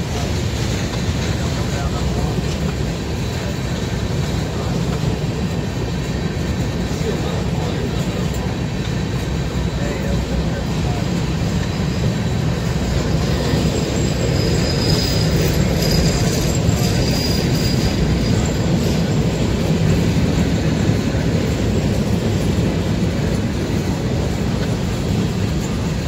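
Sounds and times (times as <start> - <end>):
train wheels rumbling on rails: 0.0 - 26.0
high wheel squeal: 9.4 - 22.4.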